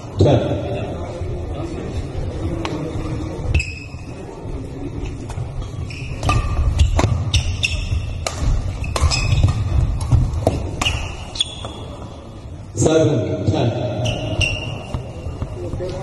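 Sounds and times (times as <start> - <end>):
low rumble of large hall: 0.0 - 16.0
rackets striking shuttlecock: 6.1 - 12.0.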